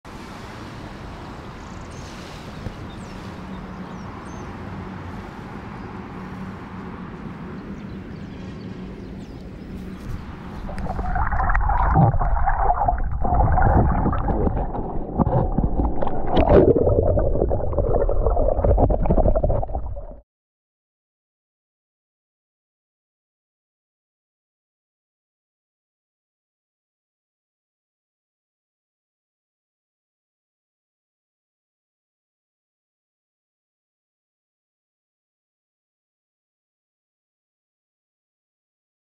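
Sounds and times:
underwater water sloshing: 0:09.7 - 0:20.2.

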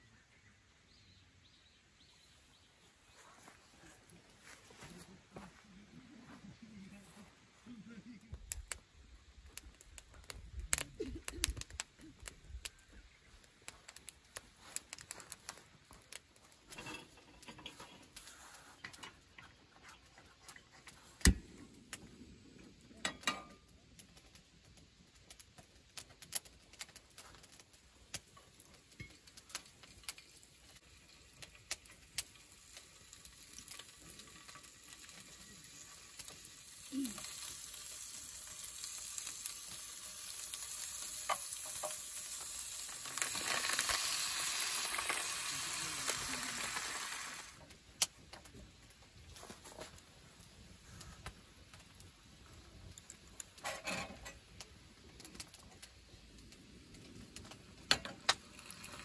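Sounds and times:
meat sizzling in a frying pan: 0:28.5 - 0:47.6, 0:57.8 - 0:59.0.

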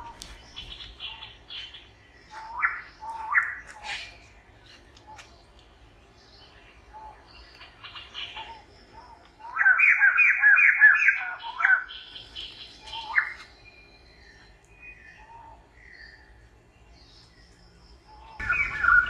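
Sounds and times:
bird chirping and whistling: 0:18.4 - 0:19.0.

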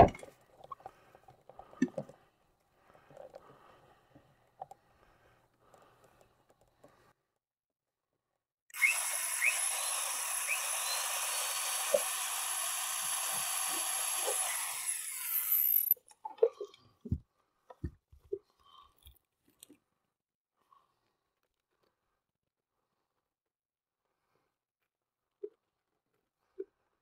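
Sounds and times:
electric drill boring into wood: 0:08.7 - 0:16.0.

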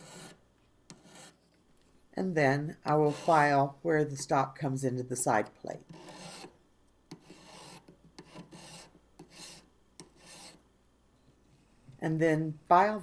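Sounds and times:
hand file rasping on metal: 0:00.0 - 0:01.4, 0:02.9 - 0:03.5, 0:05.9 - 0:06.5, 0:07.1 - 0:10.6.

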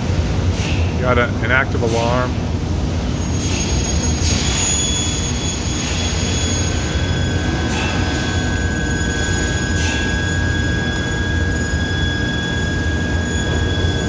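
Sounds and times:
high machine whine: 0:00.0 - 0:14.0
machinery drone: 0:00.0 - 0:14.0.

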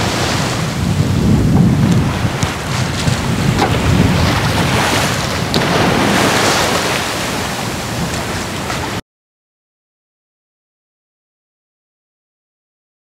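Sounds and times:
water rushing along hull: 0:00.0 - 0:09.0
waves breaking: 0:00.0 - 0:09.0
wind buffeting microphone: 0:00.0 - 0:09.0.

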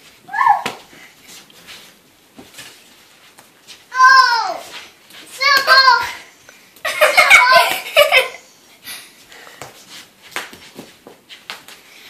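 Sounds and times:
children laughing: 0:06.8 - 0:08.5.

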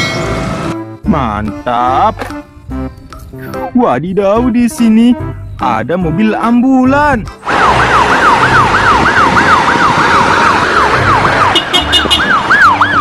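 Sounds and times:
ambulance siren yelping: 0:07.4 - 0:13.0.

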